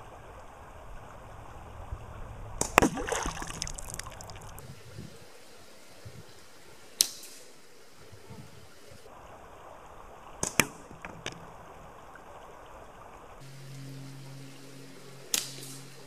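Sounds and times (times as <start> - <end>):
creek rushing: 0.0 - 16.0
slingshot shot cracks: 2.6 - 3.1, 15.3 - 15.8.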